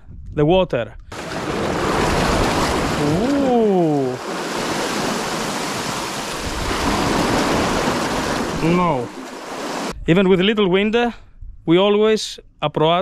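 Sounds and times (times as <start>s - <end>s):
surf splashing against rocks: 1.1s - 10.0s.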